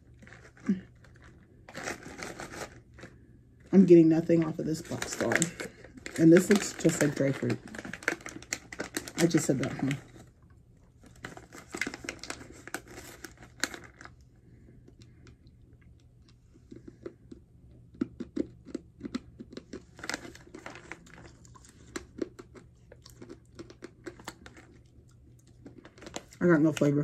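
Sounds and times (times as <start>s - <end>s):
clay being chewed crunchily: 10.8s - 26.4s.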